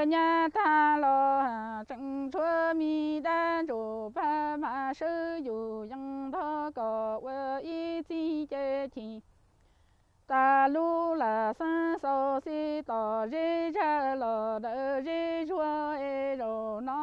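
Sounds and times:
woman singing unaccompanied: 0:00.0 - 0:17.0
short breaths: 0:09.5 - 0:10.2.

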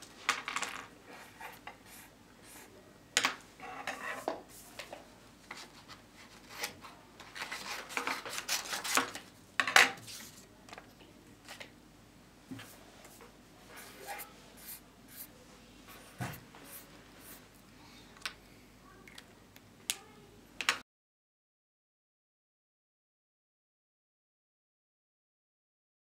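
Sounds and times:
paper rustling on a desk: 0:05.5 - 0:09.3, 0:10.0 - 0:10.5.

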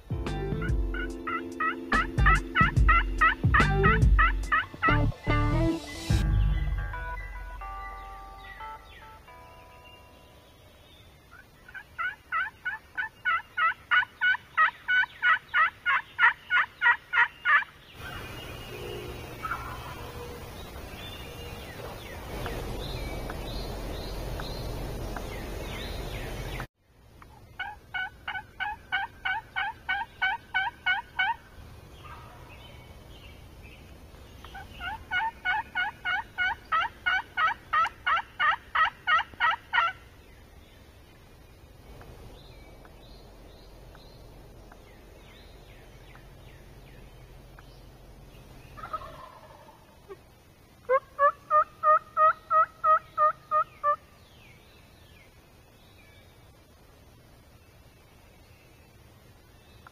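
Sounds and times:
turkey yelping: 0:00.9 - 0:05.0, 0:11.3 - 0:18.2, 0:19.0 - 0:20.2, 0:27.6 - 0:31.4, 0:32.0 - 0:32.5, 0:34.5 - 0:40.0, 0:48.8 - 0:50.2, 0:50.8 - 0:54.0.

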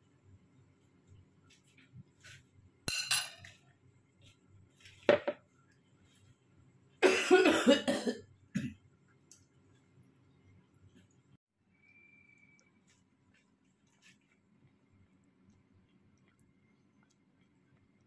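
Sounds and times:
man coughing: 0:07.0 - 0:08.8.

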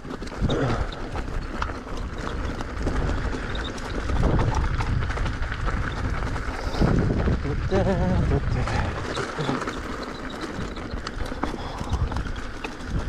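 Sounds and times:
bike clattering: 0:00.0 - 0:13.0
tyres crunching on loose stones: 0:00.0 - 0:13.0
wind rumble on microphone: 0:00.0 - 0:13.0.

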